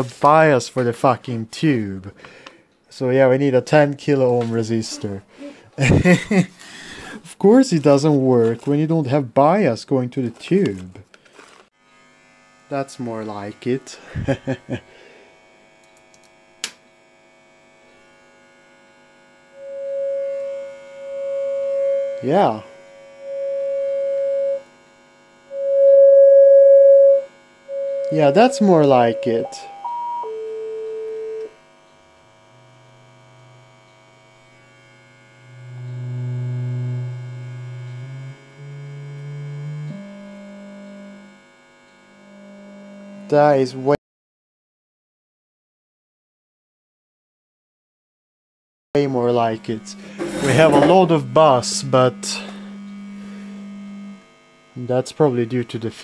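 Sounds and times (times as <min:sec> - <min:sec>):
amplifier mains buzz: 0:03.0 - 0:07.2, 0:11.8 - 0:44.0, 0:49.0 - 0:56.0
test tone: 0:19.6 - 0:24.7, 0:25.5 - 0:31.5, 0:49.2 - 0:53.4.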